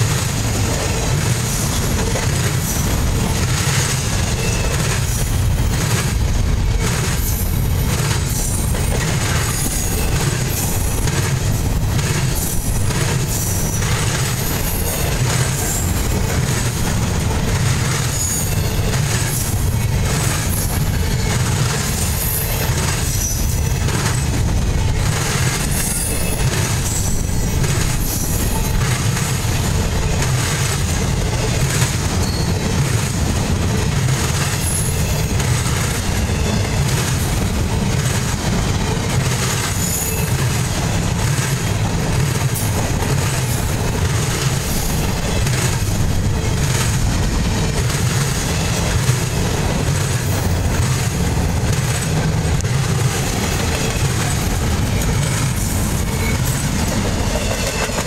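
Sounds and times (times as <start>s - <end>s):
steel wheels rumbling on rails: 0.0s - 58.0s
high-pitched wheel squeals: 32.2s - 32.8s.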